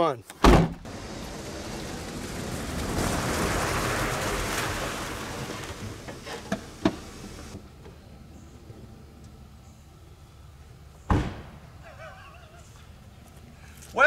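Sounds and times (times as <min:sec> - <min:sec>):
car rushing across grass: 0:00.7 - 0:07.6.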